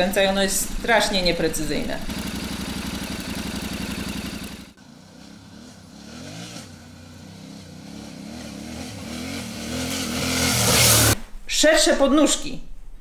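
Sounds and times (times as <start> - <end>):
motorcycle engine idling: 0.0 - 5.2
motorcycle riding on dirt track: 0.0 - 11.2.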